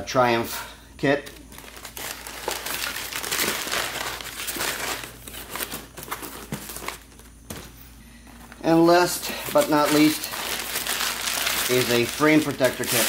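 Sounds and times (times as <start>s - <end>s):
packing paper crinkling: 1.2s - 7.4s, 8.4s - 13.0s
cardboard flaps rustling: 1.2s - 8.6s.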